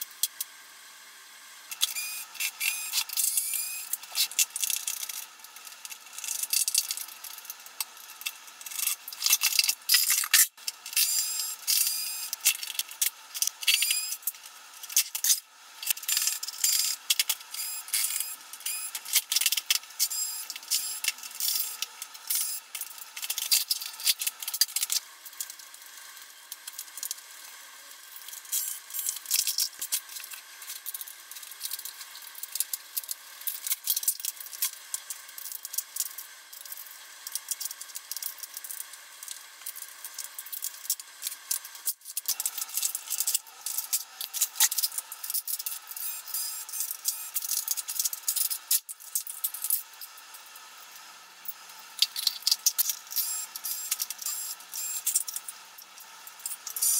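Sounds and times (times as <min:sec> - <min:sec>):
plastic parts clattering: 0:08.2 - 0:10.5.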